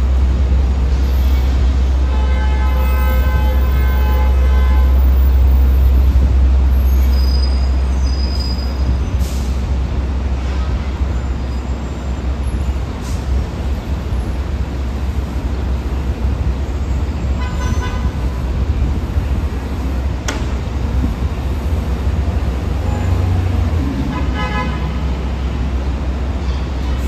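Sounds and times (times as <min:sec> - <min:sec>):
busy street traffic rumble: 0:00.0 - 0:27.0
vehicle horn honking: 0:02.0 - 0:05.2, 0:24.1 - 0:25.0.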